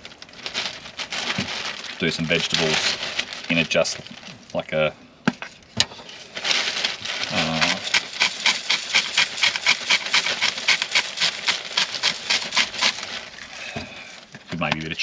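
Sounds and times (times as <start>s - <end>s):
person speaking: 2.0s - 5.0s, 7.3s - 8.0s, 13.6s - 15.0s
spice grinder crunching: 6.6s - 13.6s.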